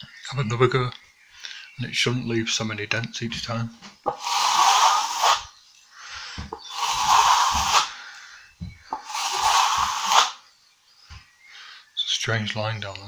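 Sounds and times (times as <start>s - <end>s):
trowel scraping wet plaster: 4.2s - 5.5s, 6.6s - 7.9s, 9.0s - 10.4s.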